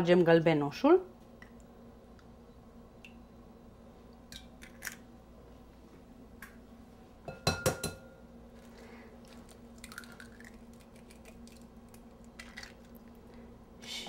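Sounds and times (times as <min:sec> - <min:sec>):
egg cracking against glass bowl: 0:09.8 - 0:13.0.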